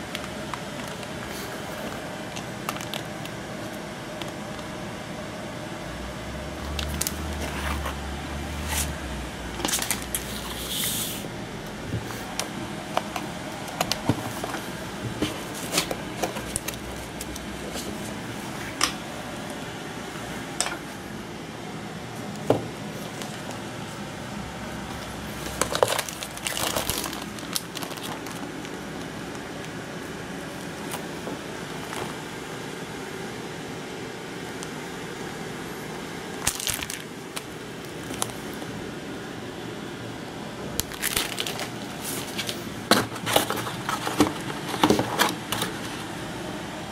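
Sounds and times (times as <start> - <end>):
packaging crinkling and rustling: 0.0 - 4.7, 6.6 - 8.0, 8.6 - 10.9, 12.0 - 18.2, 24.9 - 32.3, 36.4 - 38.7, 40.8 - 46.1.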